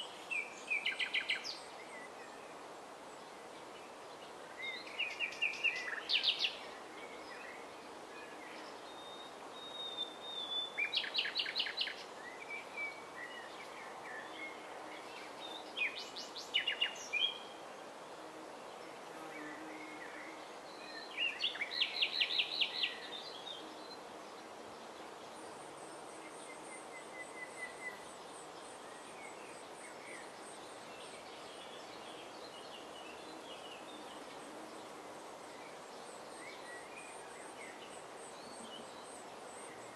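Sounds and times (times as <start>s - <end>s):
steady background hiss: 0.0s - 39.9s
nightingale singing: 8.9s - 14.6s, 15.2s - 17.5s, 20.8s - 24.0s.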